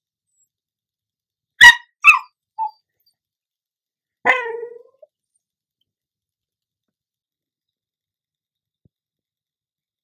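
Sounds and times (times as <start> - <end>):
small dog barking: 1.6 - 2.8, 4.2 - 5.0.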